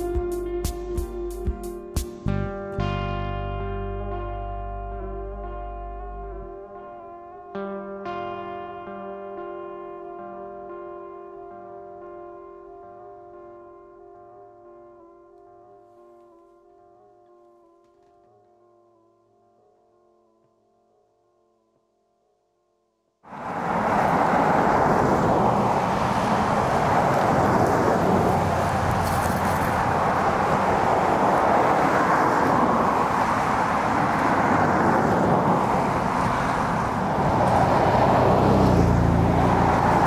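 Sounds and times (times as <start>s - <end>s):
road traffic noise: 0.0s - 7.4s, 23.3s - 40.0s
vehicle passing by: 23.3s - 40.0s.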